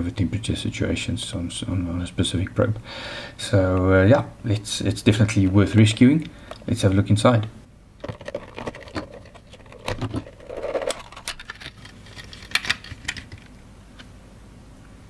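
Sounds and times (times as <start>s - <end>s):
plastic case clicks and knocks: 8.0s - 13.4s.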